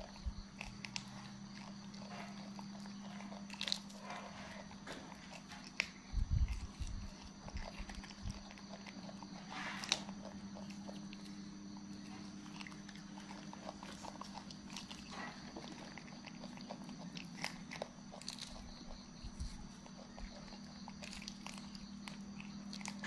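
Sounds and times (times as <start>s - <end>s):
monkeys chewing bean pods: 0.0s - 23.0s
steady low hum: 0.0s - 23.0s.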